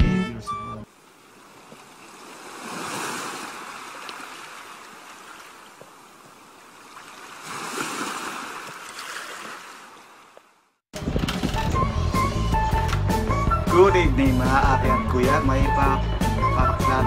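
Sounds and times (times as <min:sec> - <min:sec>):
ocean waves washing onto beach: 0:00.9 - 0:10.0.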